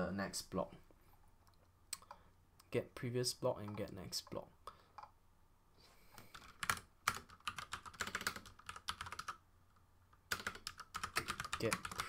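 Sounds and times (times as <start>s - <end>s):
typing on computer keyboard: 6.3s - 9.4s, 10.3s - 12.0s.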